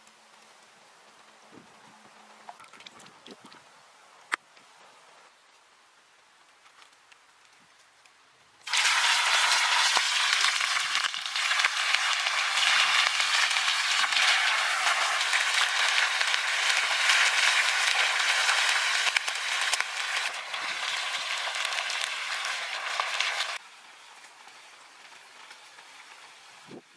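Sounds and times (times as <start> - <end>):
chicken deep-frying in oil: 8.6 - 26.9.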